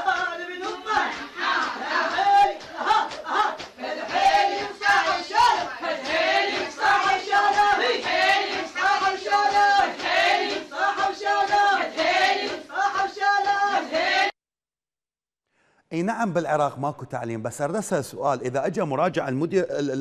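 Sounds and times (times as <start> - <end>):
women chanting in unison: 0.0 - 14.4
chest-beating slaps: 0.6 - 13.8.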